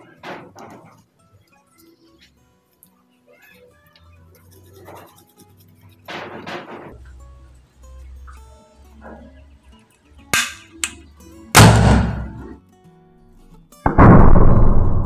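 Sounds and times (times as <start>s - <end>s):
sharp cracks: 10.4s - 11.0s, 11.6s - 12.6s
cannon boom: 11.6s - 12.6s, 13.9s - 15.0s
loud music: 11.6s - 12.6s.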